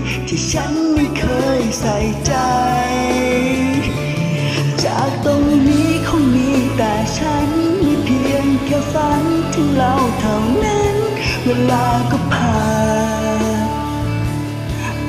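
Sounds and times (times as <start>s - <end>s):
person singing karaoke: 0.0s - 15.0s
pop backing track: 0.0s - 15.0s.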